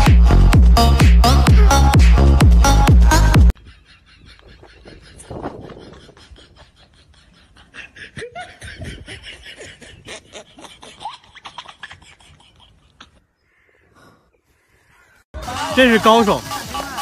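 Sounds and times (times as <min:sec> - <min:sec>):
person laughing in breathy snickers: 0:03.6 - 0:13.2.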